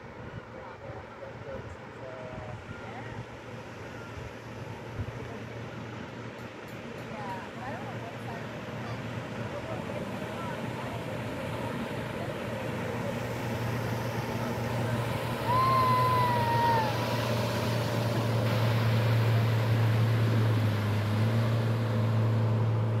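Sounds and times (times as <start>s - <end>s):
outboard motor drone: 0.0s - 23.0s
high gliding cry: 15.3s - 17.8s.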